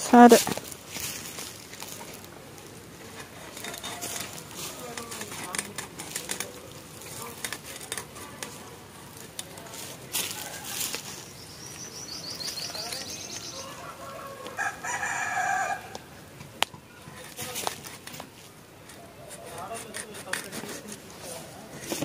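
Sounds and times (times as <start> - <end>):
high bird chirps: 11.0 - 13.8
rooster crowing: 13.4 - 16.1.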